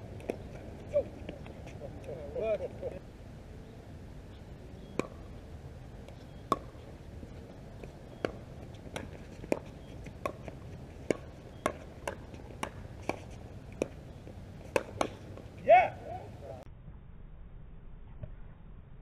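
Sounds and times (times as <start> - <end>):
ball bouncing on hard court: 7.8 - 13.2, 14.7 - 15.2.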